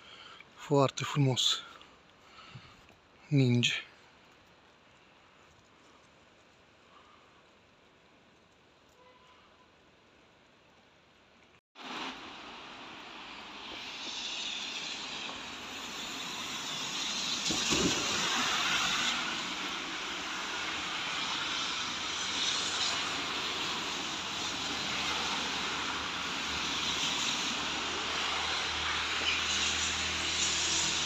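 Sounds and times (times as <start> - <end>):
cars passing: 11.8 - 31.0.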